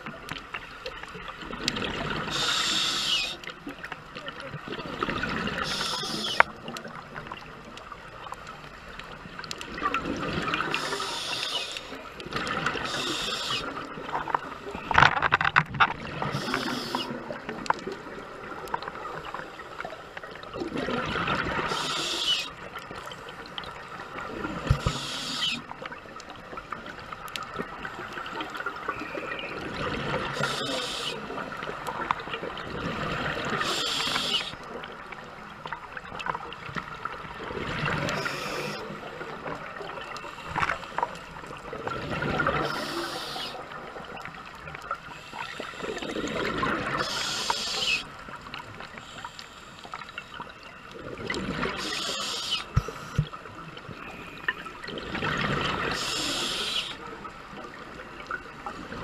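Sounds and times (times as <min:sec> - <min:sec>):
regulator hiss: 0:02.3 - 0:03.4, 0:05.6 - 0:06.4, 0:10.8 - 0:12.0, 0:12.8 - 0:13.7, 0:16.3 - 0:17.1, 0:21.7 - 0:22.5, 0:24.8 - 0:25.6, 0:30.4 - 0:31.2, 0:33.6 - 0:34.6, 0:38.2 - 0:38.9, 0:42.6 - 0:43.6, 0:47.0 - 0:48.0, 0:51.8 - 0:53.2, 0:56.0 - 0:57.0
bubbling of exhaled air underwater: 0:09.2 - 0:11.5, 0:12.2 - 0:49.0, 0:50.4 - 0:59.0.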